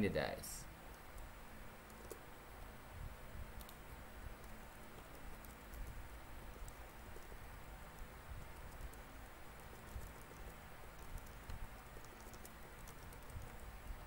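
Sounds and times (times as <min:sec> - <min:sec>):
low background hum: 0:00.0 - 0:14.0
typing on computer keyboard: 0:04.4 - 0:07.4, 0:08.0 - 0:13.6.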